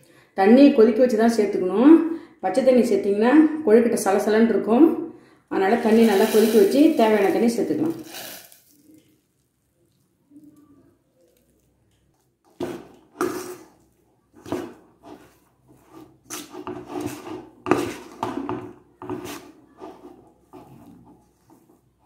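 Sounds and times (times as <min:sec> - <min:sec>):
spoon scraping dough in bowl: 0:05.7 - 0:09.0, 0:11.6 - 0:22.0.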